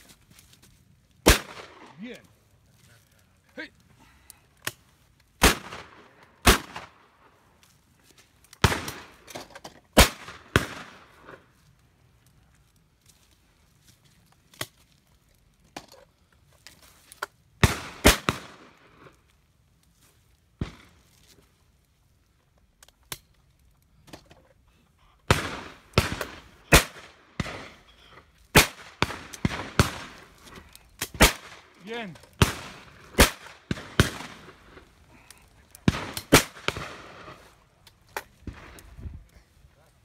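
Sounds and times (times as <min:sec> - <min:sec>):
shotgun shots: 0:01.2 - 0:01.9, 0:05.4 - 0:06.9, 0:08.6 - 0:09.2, 0:10.0 - 0:11.0, 0:17.6 - 0:18.6, 0:25.3 - 0:27.8, 0:28.5 - 0:30.2, 0:31.0 - 0:34.7, 0:35.8 - 0:37.4.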